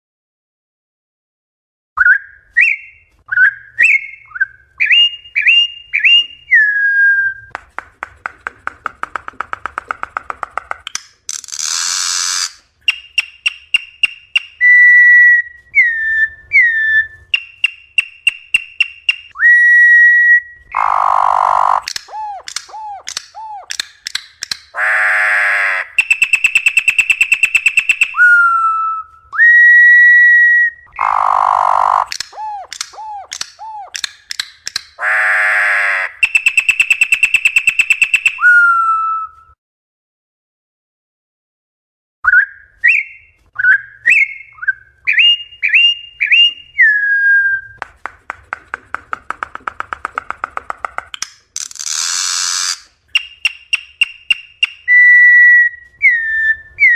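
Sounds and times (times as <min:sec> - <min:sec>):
bird singing whistled song: 0:02.0 - 0:07.5, 0:12.0 - 0:24.5, 0:26.0 - 0:34.5, 0:36.2 - 0:39.5, 0:42.2 - 0:47.8, 0:53.1 - 0:56.9.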